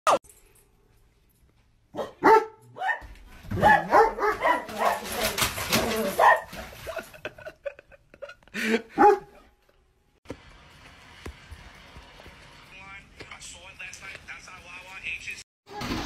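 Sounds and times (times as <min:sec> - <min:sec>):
large dog barking and yelping: 0:01.9 - 0:06.8, 0:08.9 - 0:09.6.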